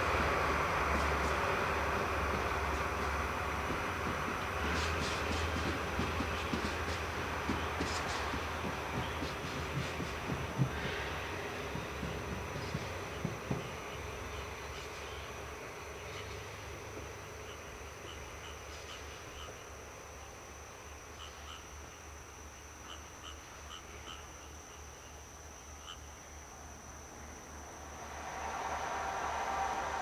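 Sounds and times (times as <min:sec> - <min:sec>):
distant diesel locomotive rumble: 0:00.0 - 0:22.0, 0:26.6 - 0:30.0
high-pitched insect trill: 0:00.4 - 0:28.6
frog chirps: 0:17.4 - 0:19.7, 0:21.1 - 0:26.3.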